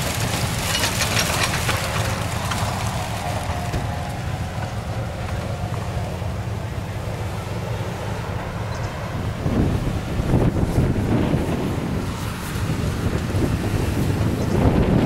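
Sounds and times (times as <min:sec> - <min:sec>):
tires spinning in stones: 0:00.0 - 0:07.5
off-road vehicle engine working: 0:00.0 - 0:15.0
wind rumble on microphone: 0:00.0 - 0:15.0.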